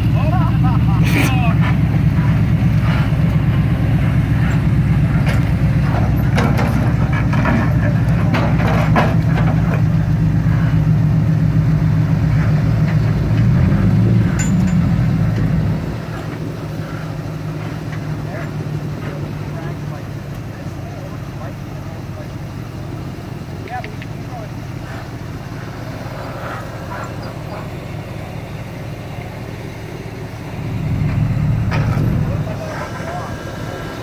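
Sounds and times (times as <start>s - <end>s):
vehicle engine running: 0.0s - 34.0s.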